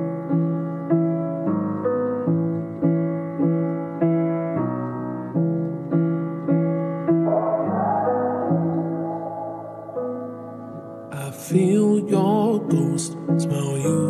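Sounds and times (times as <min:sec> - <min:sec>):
slow piano chords: 0:00.0 - 0:14.0
hissing shimmering swell: 0:07.1 - 0:11.1.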